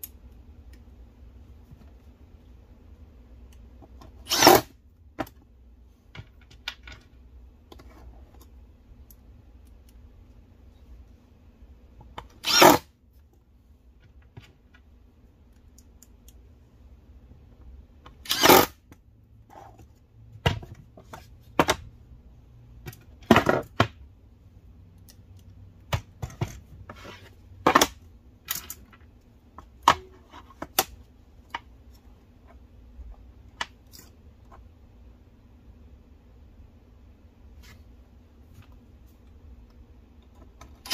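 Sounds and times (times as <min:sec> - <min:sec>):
impact driver driving screws: 0:04.3 - 0:04.7, 0:12.4 - 0:12.8, 0:18.2 - 0:18.8.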